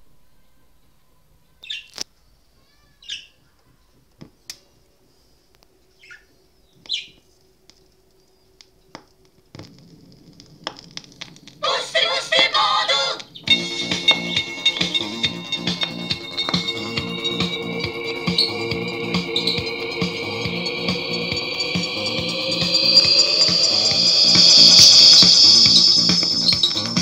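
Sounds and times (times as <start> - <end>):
record surface crackle: 7.8 - 11.6
music from small speaker: 13.5 - 27.0
short high chirps: 13.6 - 27.0.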